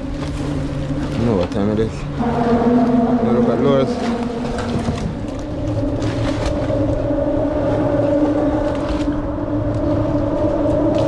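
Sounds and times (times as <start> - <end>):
engine drone: 0.0 - 11.0.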